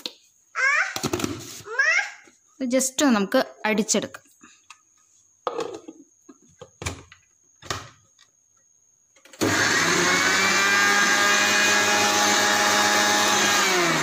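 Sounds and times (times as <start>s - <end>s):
mixer grinder motor running: 9.4s - 14.0s.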